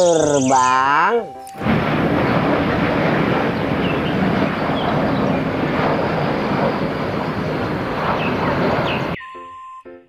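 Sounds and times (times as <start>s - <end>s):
jet engine rushing: 1.6s - 9.2s.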